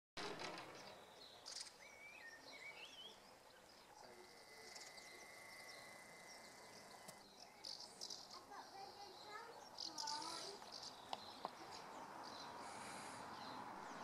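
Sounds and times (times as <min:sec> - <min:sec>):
birds chirping: 0:00.2 - 0:14.0
thin steady high tone: 0:04.0 - 0:07.6.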